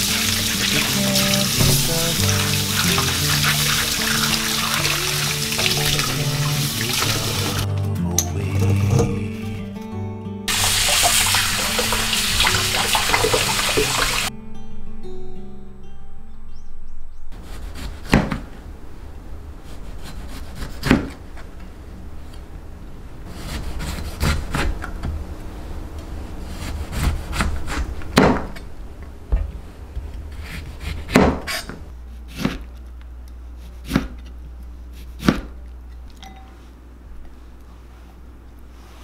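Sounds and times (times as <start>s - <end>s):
knife sawing strokes: 0.0s - 7.6s, 17.4s - 18.2s, 19.6s - 21.2s, 23.3s - 24.8s, 26.4s - 28.0s
low steady hum: 0.0s - 39.0s.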